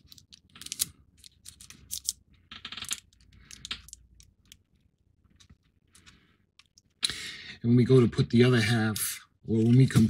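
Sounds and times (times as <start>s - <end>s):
plastic parts clicks and scrapes: 0.0s - 7.0s.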